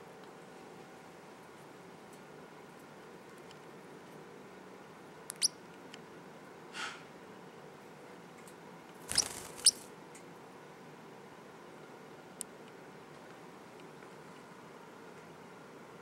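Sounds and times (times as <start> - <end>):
parrotlet squeaky chirps: 5.3 - 5.6, 9.1 - 9.8
wings fluttering: 9.0 - 9.9.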